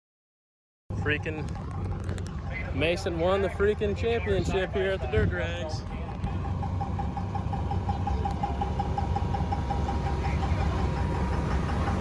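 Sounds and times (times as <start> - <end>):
diesel engine idling: 0.9 - 12.0.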